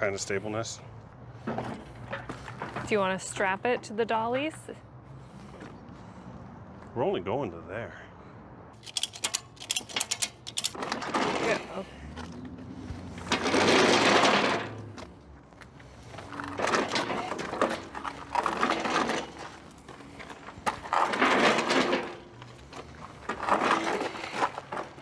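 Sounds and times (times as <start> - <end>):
wheels crunching over gravel: 10.8 - 25.0.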